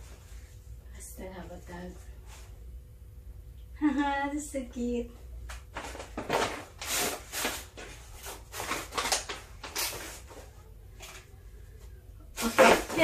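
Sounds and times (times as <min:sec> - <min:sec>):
tissue paper rustling in gift bag: 0:05.8 - 0:11.3.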